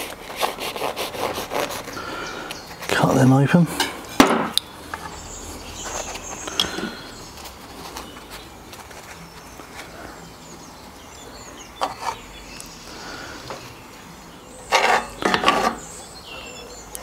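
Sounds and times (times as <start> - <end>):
metal tongs scraping in skillet: 14.7 - 15.8.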